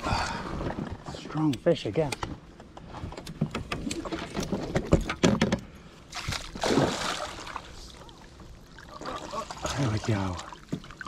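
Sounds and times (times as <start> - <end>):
fish splashing at the surface: 6.1 - 7.7.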